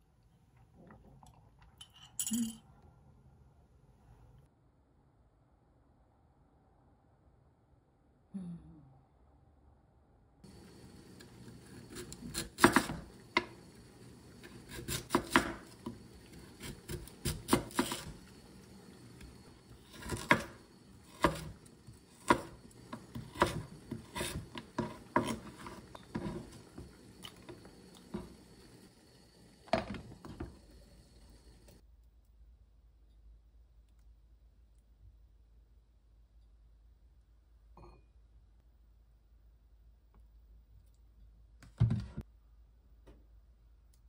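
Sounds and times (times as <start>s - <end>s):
knife chopping on wooden board: 12.0s - 13.6s, 14.4s - 15.8s, 16.6s - 18.2s, 19.9s - 26.5s.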